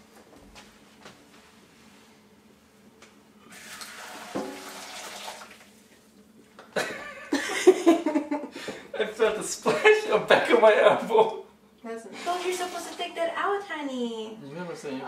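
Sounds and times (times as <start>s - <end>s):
water splashing into sink: 3.6s - 5.7s, 12.3s - 13.1s.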